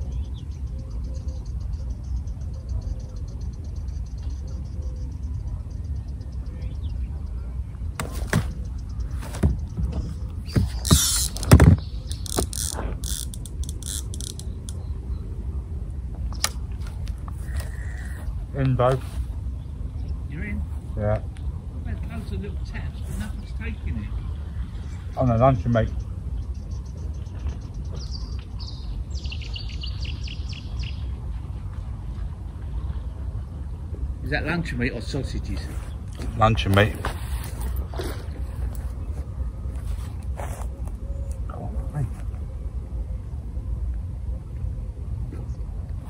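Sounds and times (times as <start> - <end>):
steady low rumble: 0.0 - 46.0
fishing reel clicking: 10.9 - 11.4, 12.1 - 14.8.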